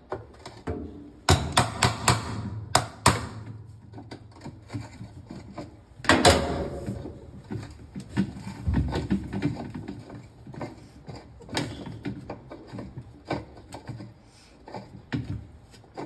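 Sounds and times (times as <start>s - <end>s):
hard plastic clacks and knocks: 7.2s - 16.0s.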